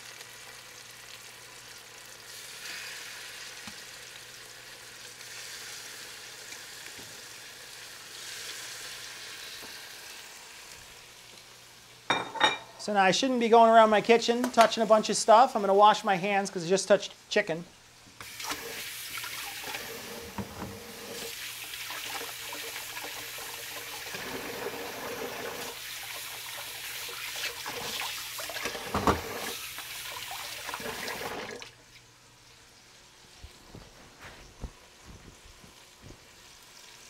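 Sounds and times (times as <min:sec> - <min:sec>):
hands drying on towel: 0:33.4 - 0:36.4.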